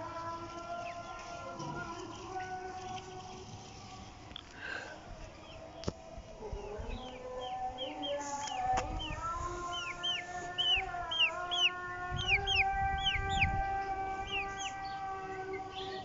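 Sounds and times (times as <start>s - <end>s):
chicks peeping: 0.0s - 16.0s.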